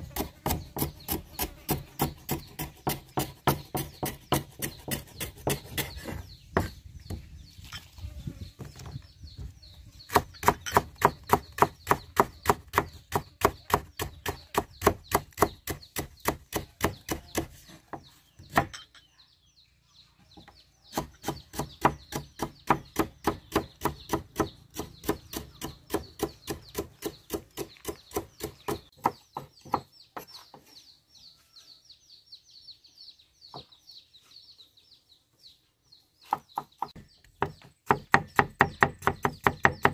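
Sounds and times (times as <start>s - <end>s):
cleaver chopping on wooden block: 0.1s - 7.2s, 10.1s - 18.8s, 20.9s - 29.9s, 36.3s - 39.9s.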